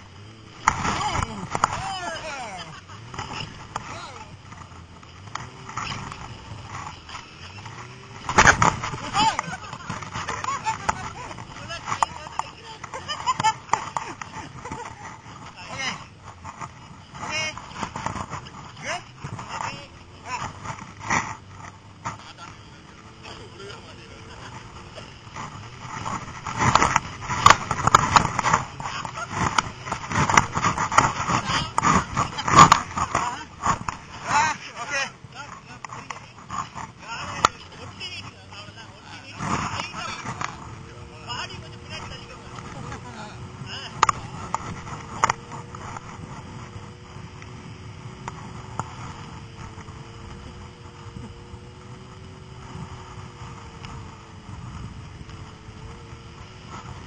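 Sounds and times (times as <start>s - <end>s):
snowmobile engine running: 0.0s - 57.0s
inflatable sled knocking and scraping: 0.6s - 22.5s, 25.0s - 40.6s.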